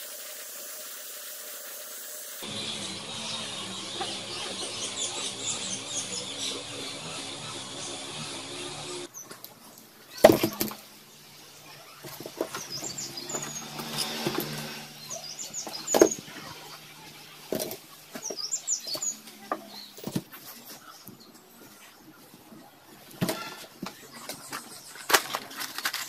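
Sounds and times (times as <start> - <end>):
birds chirping: 2.4 - 25.3.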